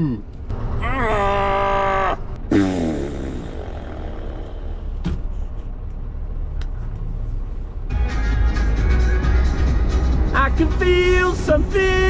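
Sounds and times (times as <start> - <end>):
lorry engine and road rumble: 0.0 - 12.0
music: 7.9 - 12.0.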